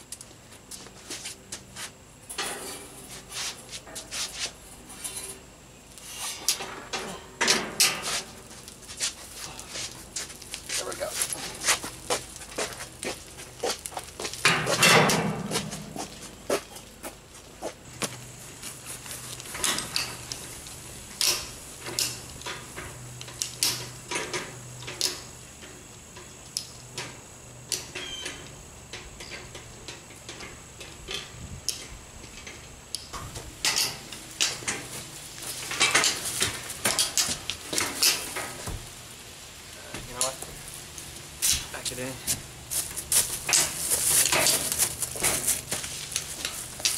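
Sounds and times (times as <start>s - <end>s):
metal frame clanking and rattling: 2.2s - 3.1s, 6.3s - 8.4s, 14.4s - 16.2s, 27.8s - 38.9s, 43.0s - 45.8s.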